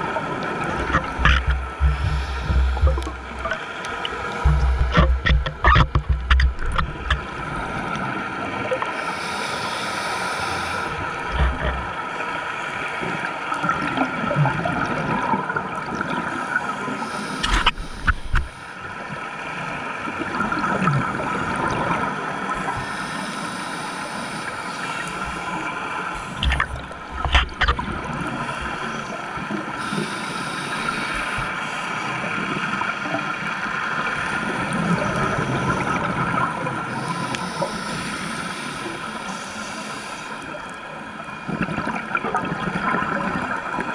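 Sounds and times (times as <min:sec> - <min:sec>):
scuba regulator bubbling: 0:00.0 - 0:07.9, 0:09.0 - 0:12.0, 0:17.0 - 0:18.6, 0:22.6 - 0:29.0
underwater rushing hiss: 0:00.8 - 0:03.5, 0:08.9 - 0:11.8, 0:16.4 - 0:18.8, 0:22.6 - 0:26.6, 0:29.8 - 0:32.1, 0:36.9 - 0:40.5.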